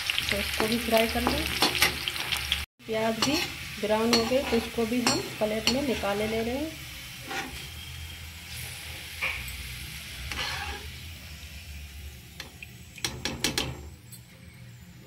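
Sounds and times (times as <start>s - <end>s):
oil sizzling in a pan: 0.0s - 13.8s
metal skimmer scraping a pan: 4.2s - 7.9s, 10.2s - 11.0s.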